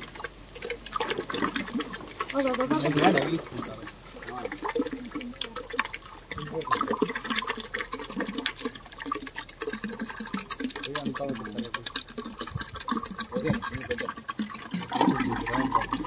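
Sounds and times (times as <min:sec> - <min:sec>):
slurry pouring and splattering: 0:00.0 - 0:16.0
people talking: 0:02.3 - 0:05.7, 0:10.8 - 0:11.9, 0:13.3 - 0:14.0, 0:15.0 - 0:16.0.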